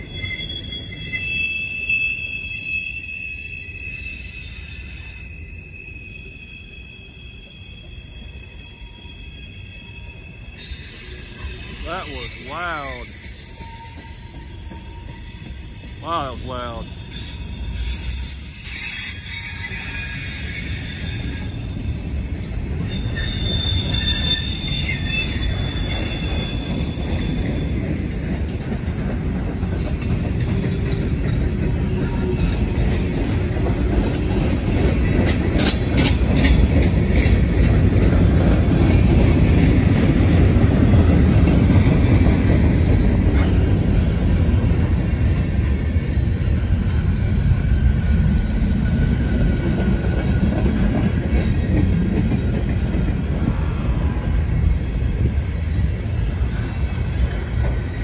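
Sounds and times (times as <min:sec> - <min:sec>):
sharp squeaks: 0:00.0 - 0:16.4, 0:17.1 - 0:21.7, 0:22.9 - 0:27.4
high-pitched wheel squeal: 0:00.0 - 0:22.2, 0:22.8 - 0:27.8
steel wheels rumbling on rail: 0:00.0 - 0:58.0.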